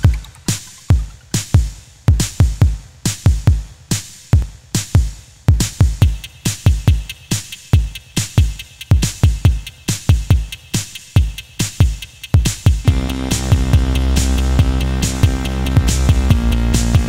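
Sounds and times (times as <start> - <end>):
electronic music with drum machine: 0.0 - 17.0.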